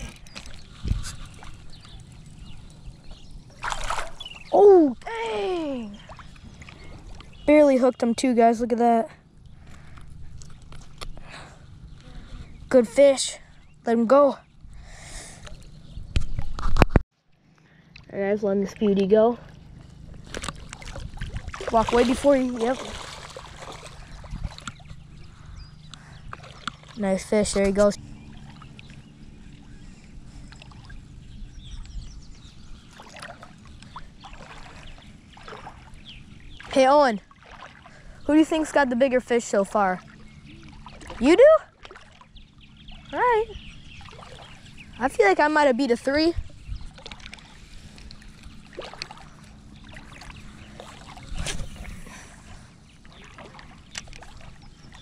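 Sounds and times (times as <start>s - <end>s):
small water splashes: 0.0s - 8.0s, 20.2s - 29.8s, 30.4s - 31.0s, 32.8s - 55.0s
shallow water sloshing: 0.0s - 8.6s, 17.8s - 55.0s
low rumble of wind: 0.0s - 55.0s.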